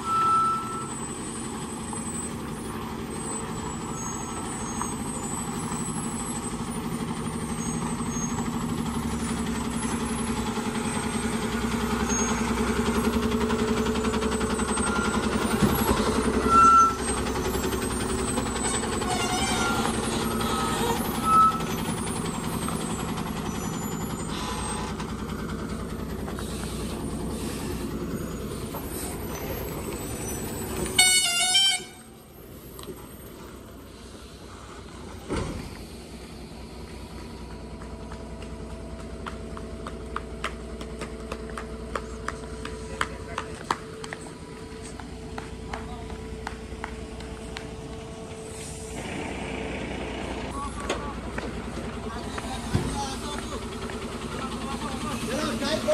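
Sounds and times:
truck diesel engine running: 0.0 - 55.9
truck horn: 15.8 - 17.1, 19.0 - 21.8, 30.7 - 32.4.

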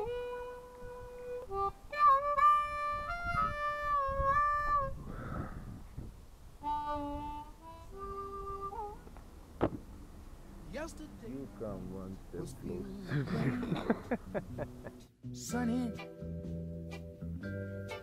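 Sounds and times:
harmonica notes and chords: 0.0 - 5.4, 6.6 - 9.2
sharp knock: 9.6 - 9.8.

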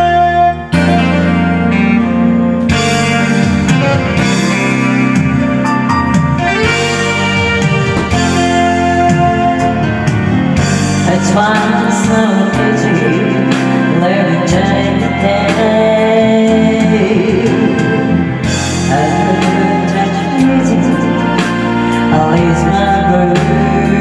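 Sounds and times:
backing track music: 0.0 - 24.0
woman singing karaoke: 10.7 - 24.0.

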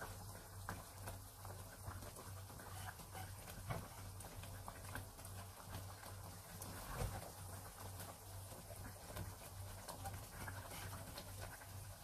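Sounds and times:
syrup simmering in a pan: 0.0 - 12.0
spatula turning sticky rice: 9.3 - 11.7.

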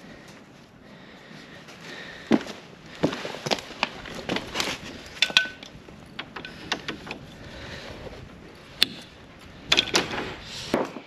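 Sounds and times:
brass fittings clacking: 4.0 - 7.5, 9.7 - 10.3.

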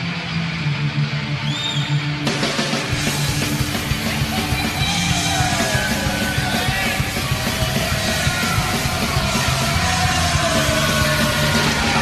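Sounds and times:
loud rock music: 0.0 - 12.0
person singing or shouting: 4.2 - 12.0.

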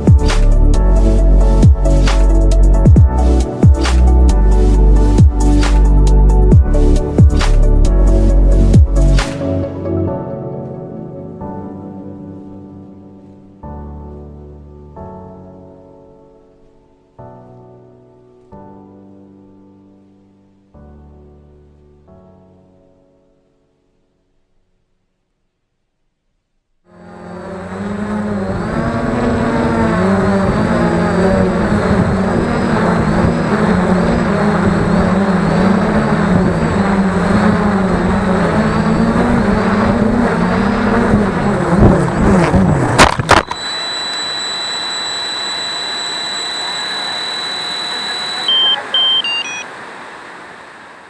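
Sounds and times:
high whine: 0.0 - 9.8, 26.9 - 51.0
drone propellers humming: 0.0 - 10.0, 26.9 - 51.0
descending beeps: 43.3 - 49.8.

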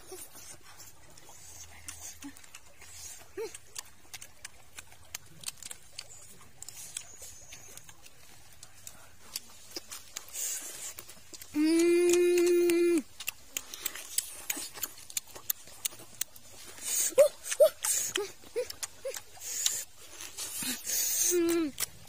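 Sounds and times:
wet chewing and lip-smacking: 0.0 - 22.0
person humming mmm: 9.7 - 14.9, 16.8 - 22.0.

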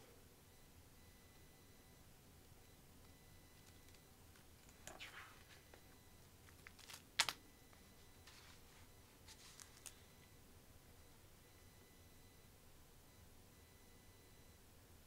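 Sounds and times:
book pages turning: 6.5 - 7.4.

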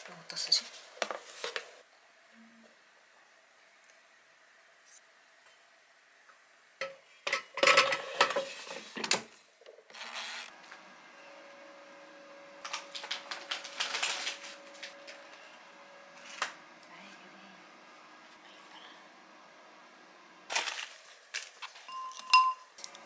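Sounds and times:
plastic bag crinkling: 12.6 - 15.2, 20.5 - 22.2.

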